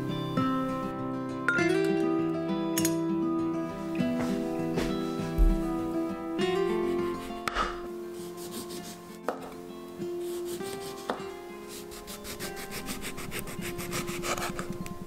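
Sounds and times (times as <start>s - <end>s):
soft background music: 0.0s - 15.0s
knife slicing lemon: 10.2s - 14.7s.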